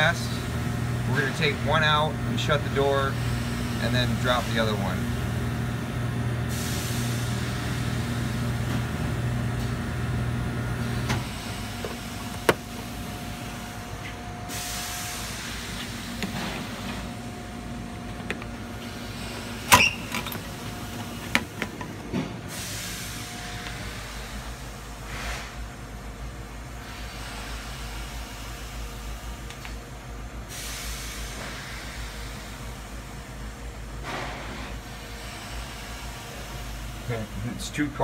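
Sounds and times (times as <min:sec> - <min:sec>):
test chamber humming: 0:00.0 - 0:30.6
sharp clicks and knocks: 0:11.1 - 0:12.9.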